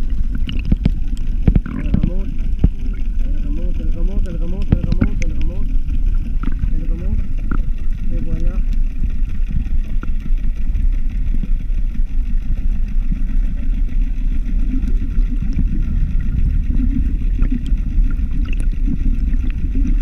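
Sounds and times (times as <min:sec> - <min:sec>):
low underwater rumble: 0:00.0 - 0:20.0
faint clicks: 0:00.2 - 0:15.8.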